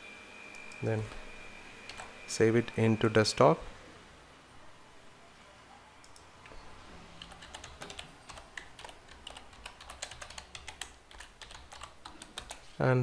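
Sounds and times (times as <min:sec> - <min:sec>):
computer keyboard typing: 0:01.9 - 0:02.1, 0:07.2 - 0:12.7.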